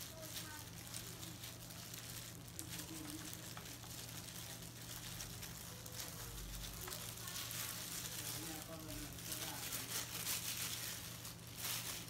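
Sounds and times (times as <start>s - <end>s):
plastic gloves crinkling: 0.0s - 12.0s.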